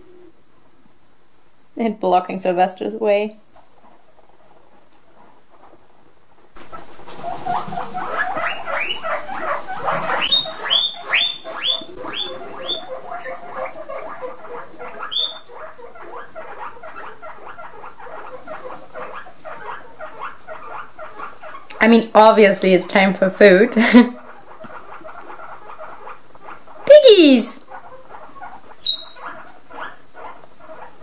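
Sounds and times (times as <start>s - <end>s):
guinea pigs wheeking: 1.8s - 31.0s
short rapid squeaks: 28.8s - 29.2s.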